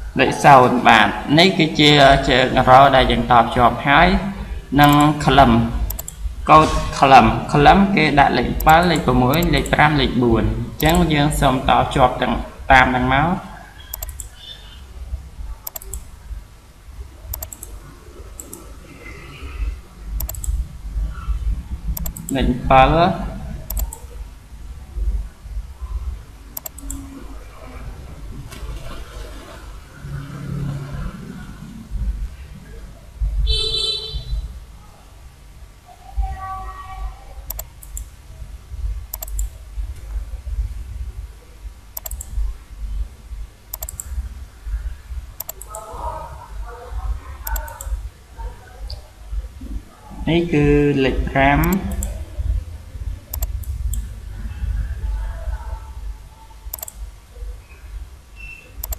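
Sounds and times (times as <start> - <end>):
computer mouse clicking: 4.8 - 5.2, 5.8 - 6.2, 8.6 - 9.8, 10.8 - 11.1, 13.8 - 14.7, 15.6 - 16.1, 17.3 - 17.8, 18.4 - 18.7, 20.1 - 21.3, 21.9 - 22.4, 23.6 - 24.2, 26.5 - 27.2, 37.4 - 38.1, 39.1 - 40.2, 42.0 - 42.4, 43.7 - 44.2, 45.4 - 46.0, 47.4 - 48.0, 51.6 - 52.3, 53.3 - 54.1, 56.7 - 57.0
low rumble: 29.9 - 33.5, 51.9 - 57.5
low background rumble: 30.9 - 34.9, 35.6 - 58.9.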